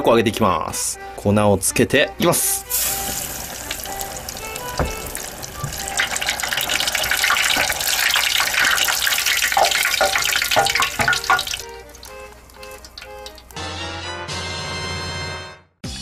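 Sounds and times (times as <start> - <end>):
deep-frying crackling sizzle: 2.7 - 13.7.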